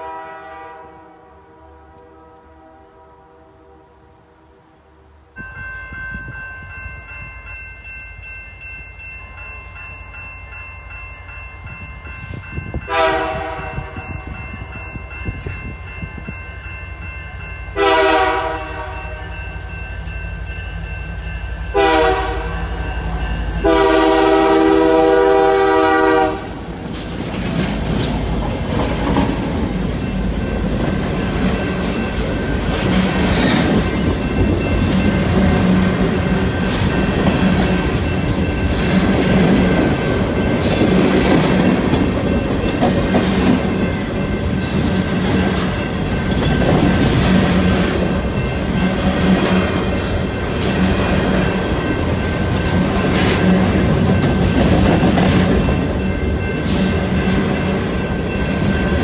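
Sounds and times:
train air horn blasts: 0.0 - 4.9, 12.2 - 14.1, 17.8 - 19.4, 21.7 - 22.8, 23.6 - 26.7
freight train rumble: 0.0 - 59.0
train wheel clatter: 26.1 - 59.0.

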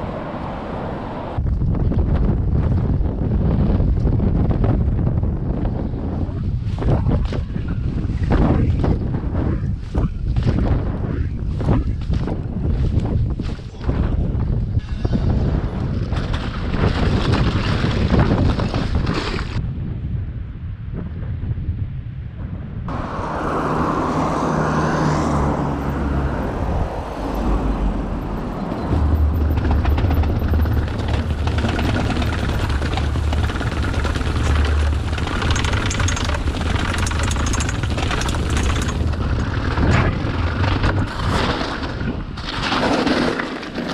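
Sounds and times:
wind buffeting microphone: 0.0 - 43.9
bicycle rattling over rough ground: 2.5 - 19.6, 28.1 - 43.9.

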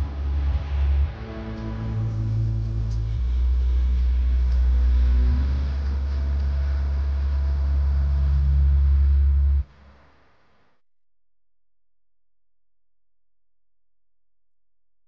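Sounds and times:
background music with deep bass drone: 0.0 - 10.0.

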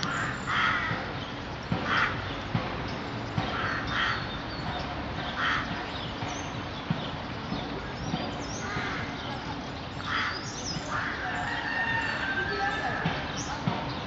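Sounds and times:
crows cawing: 0.0 - 1.1, 1.8 - 2.3, 3.5 - 4.4, 5.4 - 5.8, 8.6 - 9.3, 10.0 - 13.0
small birds chirping: 0.0 - 14.0.

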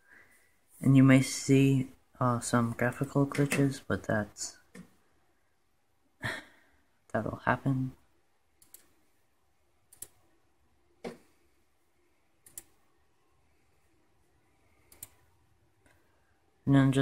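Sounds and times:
computer mouse clicks: 8.6 - 9.0, 9.9 - 10.2, 12.4 - 12.8, 14.8 - 15.2.

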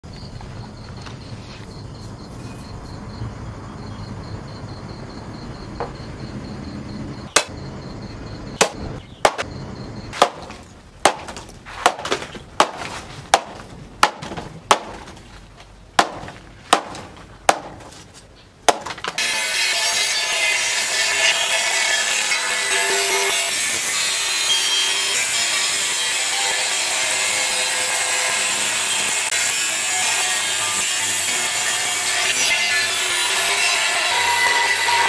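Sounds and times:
knife chopping stalk on wood: 8.6 - 9.4, 10.2 - 15.0.

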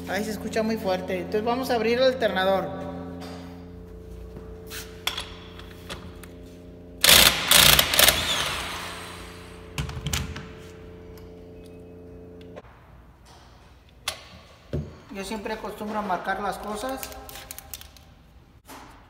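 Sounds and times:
steady low hum: 0.0 - 16.6
impact wrench hammering: 7.0 - 10.6.

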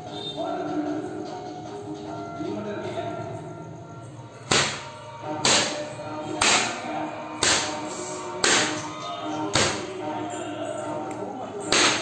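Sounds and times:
faint background music: 0.0 - 12.0
cloth slapping tiled floor: 4.4 - 6.8, 7.4 - 9.9, 11.1 - 12.0.

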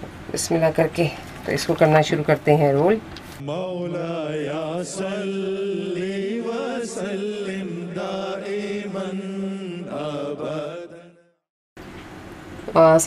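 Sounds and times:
chanted vocal melody: 3.4 - 11.4.

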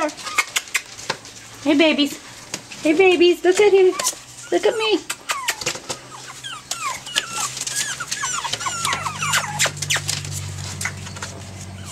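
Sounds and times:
puppies whining and squeaking: 0.0 - 1.6, 3.5 - 11.9
puppies scuffling: 0.0 - 11.9.

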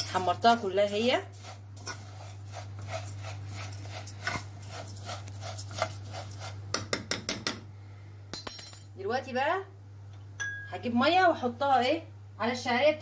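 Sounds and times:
spoon stirring noodles in pan: 0.0 - 6.9.

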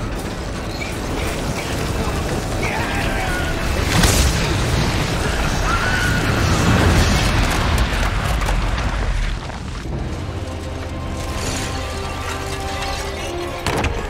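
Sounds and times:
orchestral music: 9.8 - 14.0.

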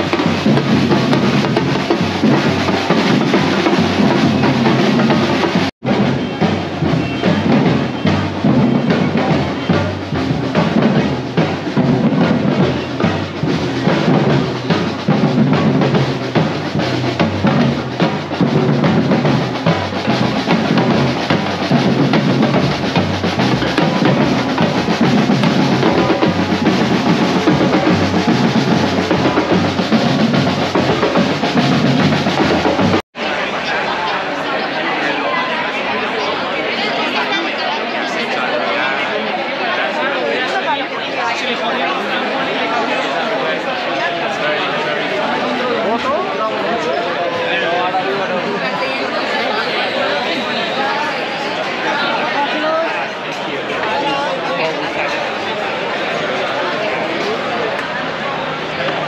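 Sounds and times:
drums and percussion beat: 0.0 - 33.1.

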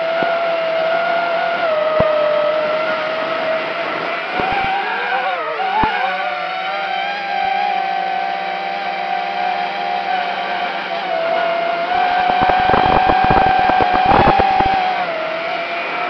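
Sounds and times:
quadcopter motors whining: 11.0 - 15.3
short ticks: 12.2 - 14.8.

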